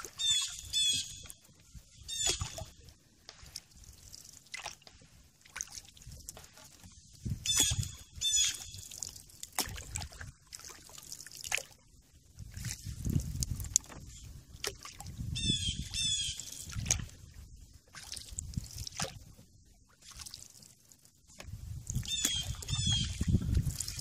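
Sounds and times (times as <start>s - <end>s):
water dripping off paddle: 0.0s - 11.8s, 20.0s - 24.0s
paddle splashing and knocking: 0.0s - 24.0s
bird call: 0.2s - 1.4s, 2.0s - 2.6s.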